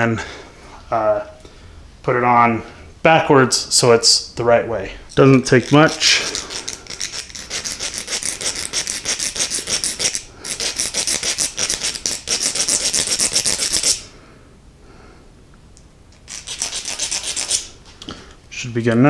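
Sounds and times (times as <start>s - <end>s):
hand file rasping on metal: 5.5s - 14.0s, 16.3s - 17.7s.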